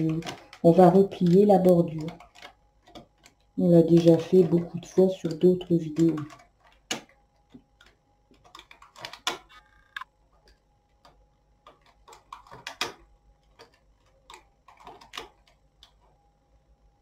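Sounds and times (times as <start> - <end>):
knitting machine needles clicking: 0.0 - 16.1.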